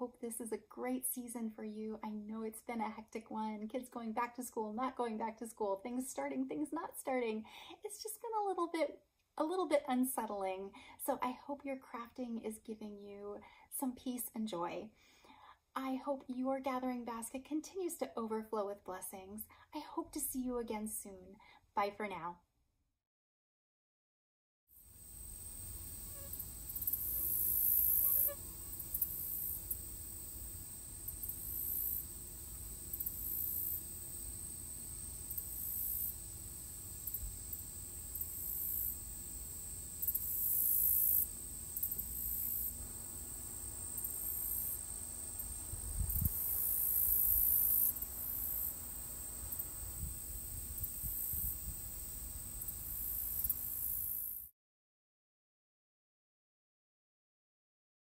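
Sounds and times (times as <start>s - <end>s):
insects buzzing in pulses: 24.8s - 54.5s
steady high insect whine: 24.8s - 54.5s
wind rumble on microphone: 45.7s - 46.4s.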